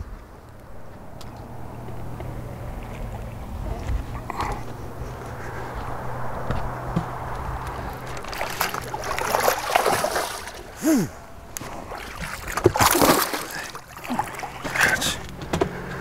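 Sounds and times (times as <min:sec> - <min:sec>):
low steady hum: 0:00.0 - 0:16.0
fish splashing and thrashing: 0:04.3 - 0:16.0.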